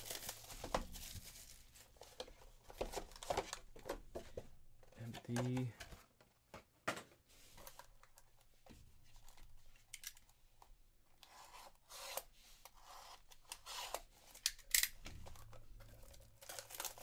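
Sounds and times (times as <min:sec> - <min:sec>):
plastic wrap tearing: 0:15.5 - 0:17.0.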